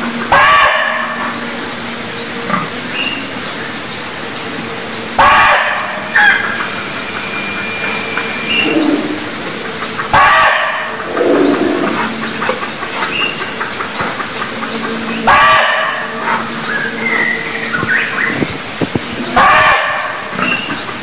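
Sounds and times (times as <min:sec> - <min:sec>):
barking deer bark: 0:00.3 - 0:01.2, 0:05.2 - 0:06.4, 0:10.1 - 0:12.0, 0:15.2 - 0:16.1, 0:19.4 - 0:20.2
high rising chirps: 0:06.8 - 0:10.0, 0:10.7 - 0:12.5.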